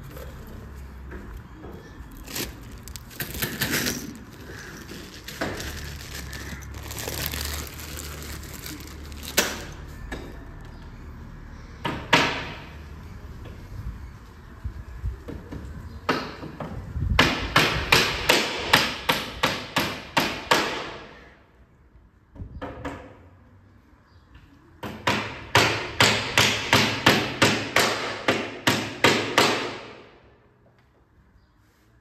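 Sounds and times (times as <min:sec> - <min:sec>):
hammer striking wood: 0:24.8 - 0:30.0.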